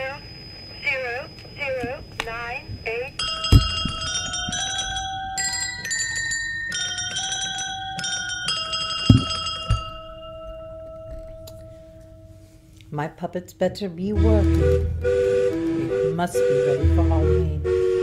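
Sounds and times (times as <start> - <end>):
dull knocks: 3.2 - 5.0, 9.1 - 10.0
bell-like chime melody: 3.2 - 12.4.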